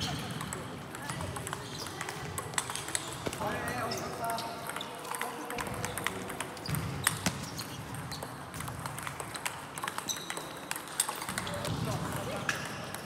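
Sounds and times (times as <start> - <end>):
ball bouncing on table: 0.0 - 3.7, 4.6 - 13.0
ping-pong ball clicking: 0.1 - 3.2, 4.3 - 7.3, 7.9 - 11.7.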